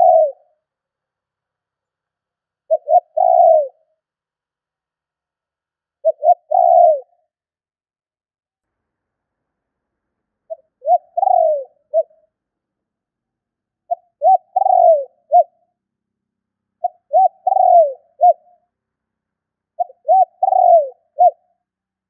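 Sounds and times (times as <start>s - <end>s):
dove cooing: 0.0s - 0.5s, 2.7s - 3.9s, 6.0s - 7.3s, 10.5s - 12.2s, 13.9s - 15.6s, 16.8s - 18.6s, 19.8s - 21.5s.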